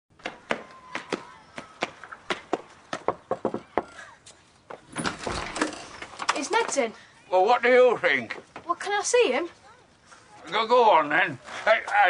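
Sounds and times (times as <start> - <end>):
front door rattling open: 4.9 - 6.8.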